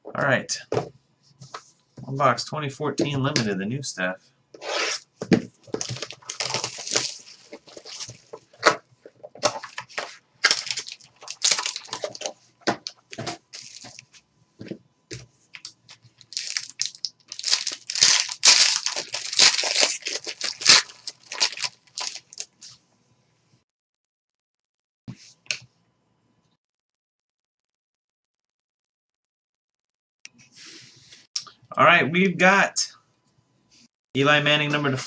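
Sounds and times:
plastic wrap crinkling: 5.6 - 14.1, 15.6 - 22.8.

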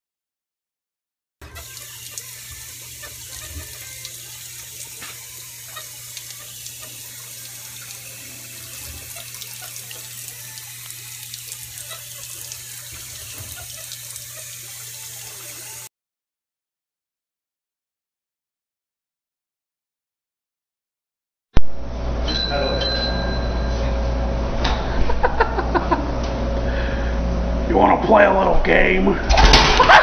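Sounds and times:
water splashing from hose: 1.4 - 15.9.

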